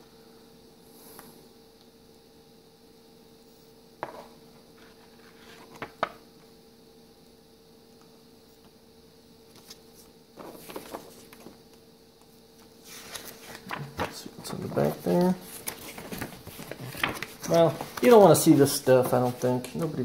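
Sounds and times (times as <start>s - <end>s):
faint steady hum: 0.0s - 20.0s
paper rustling: 4.8s - 6.0s, 9.5s - 11.6s, 12.6s - 20.0s.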